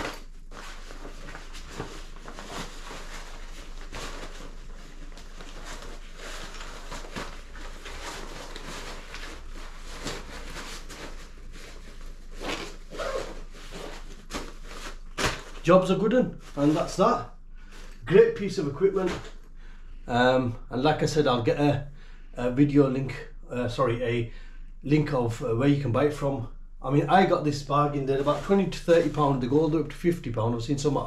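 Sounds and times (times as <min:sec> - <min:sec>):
nylon fabric rustling: 0:00.0 - 0:18.1, 0:28.1 - 0:29.4.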